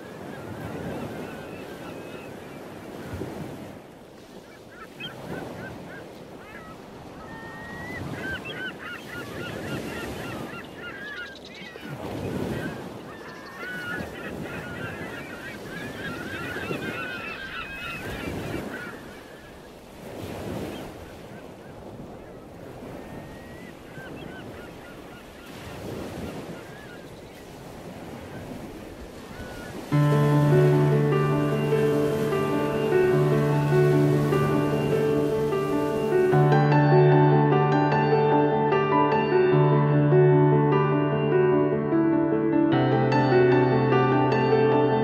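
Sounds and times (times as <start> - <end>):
flock of birds calling: 0.1 - 3.4, 4.3 - 19.8, 28.4 - 36.8
surf washing onto beach: 25.6 - 36.8.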